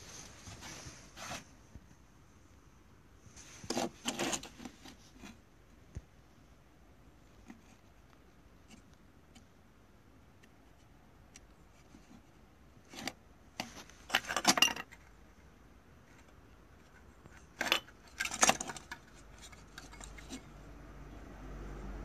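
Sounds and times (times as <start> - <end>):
plastic parts clicking and clattering: 3.6 - 5.4, 11.3 - 15.1, 16.0 - 20.5.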